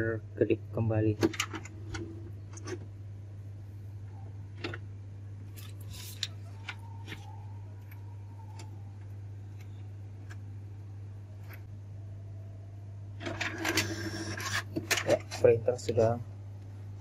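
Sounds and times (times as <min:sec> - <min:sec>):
steady low hum: 0:00.0 - 0:17.0
faint motor whine: 0:01.6 - 0:17.0
printer mechanism clicking: 0:13.2 - 0:15.2.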